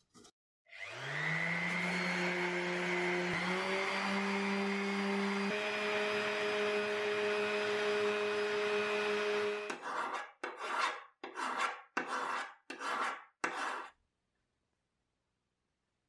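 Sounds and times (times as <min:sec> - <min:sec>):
electric orbital sander running: 0:00.8 - 0:09.7
hand file rasping on steel: 0:09.6 - 0:13.9.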